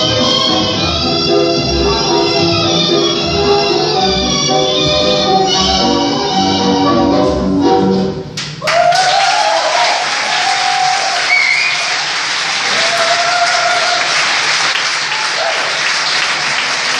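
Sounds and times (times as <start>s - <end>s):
tango music: 0.0s - 8.4s
voices cheering: 8.6s - 16.2s
audience applause: 8.6s - 16.9s.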